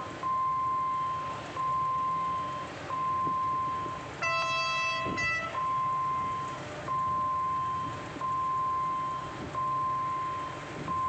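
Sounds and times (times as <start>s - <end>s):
level crossing alarm beeping: 0.2s - 11.0s
low horn-like tone: 4.2s - 5.7s.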